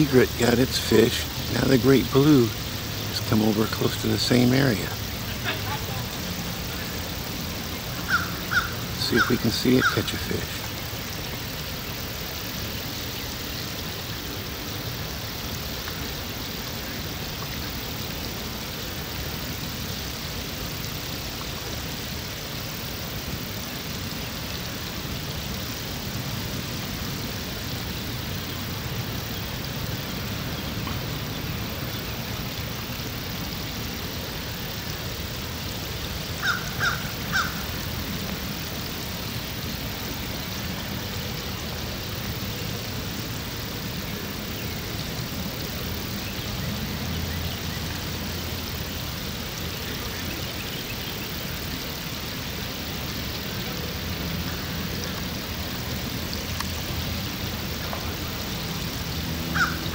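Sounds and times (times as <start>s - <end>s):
bird calling: 0.0s - 14.4s, 35.9s - 38.2s, 59.4s - 59.9s.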